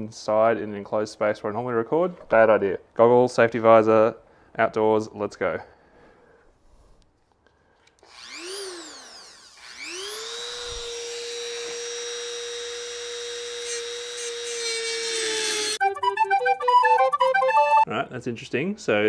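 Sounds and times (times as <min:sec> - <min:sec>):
rotary tool high-pitched whine: 0:08.0 - 0:15.8.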